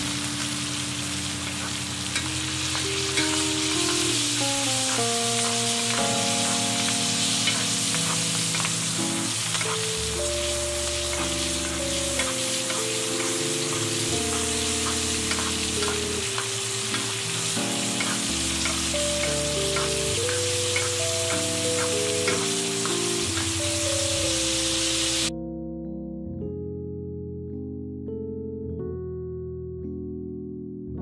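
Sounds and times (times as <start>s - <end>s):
steaks sizzling in butter: 0.0s - 25.3s
background music with held notes: 0.0s - 31.0s
spoon basting in pan: 1.4s - 25.3s.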